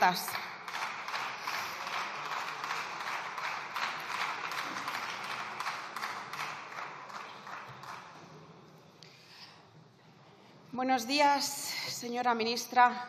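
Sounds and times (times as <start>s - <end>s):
group of people clapping: 0.0s - 8.7s.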